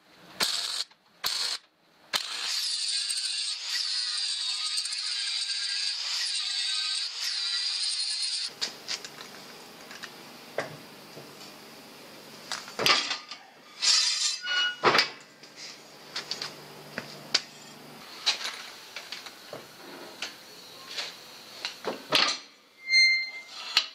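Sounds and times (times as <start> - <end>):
sheet steel clanking and scraping: 13.8 - 14.9.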